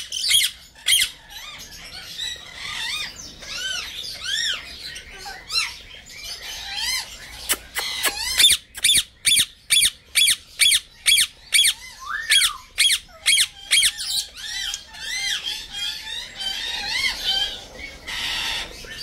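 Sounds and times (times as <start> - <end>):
parrot calling: 6.6 - 18.7.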